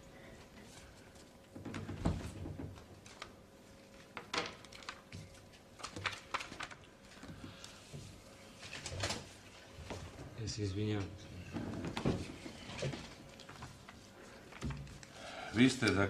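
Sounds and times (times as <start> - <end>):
faint steady hum: 0.0 - 16.0
paper rustling and knocks: 4.0 - 10.2.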